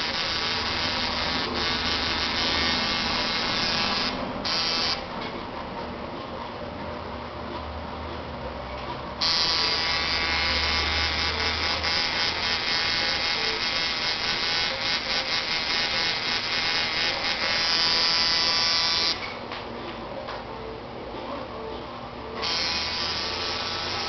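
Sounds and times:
tattoo machine buzzing: 0.0s - 5.1s, 9.2s - 19.4s, 22.4s - 24.0s.

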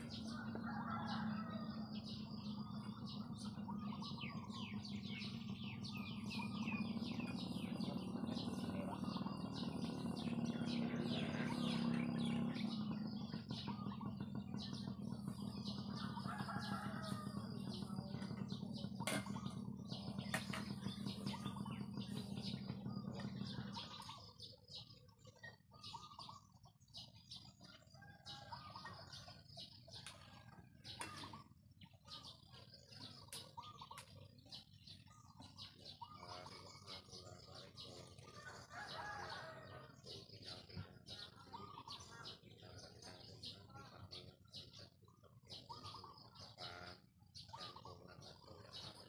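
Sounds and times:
low hum: 0.0s - 24.4s
small birds chirping: 0.0s - 49.0s.

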